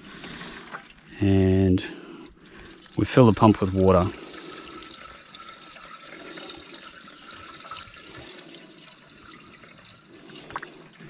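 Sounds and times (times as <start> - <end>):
water pouring from a plastic can: 2.2 - 11.0.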